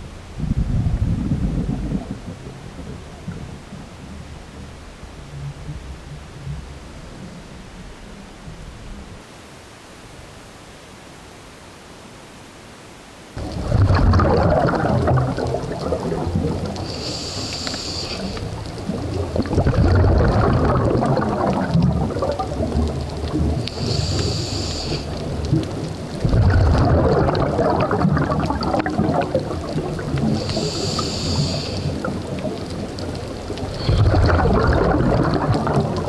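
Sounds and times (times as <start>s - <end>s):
exhaled bubbles gushing: 13.4s - 36.0s
regulator hissing inhale: 16.8s - 18.6s, 23.7s - 25.3s, 30.3s - 32.1s.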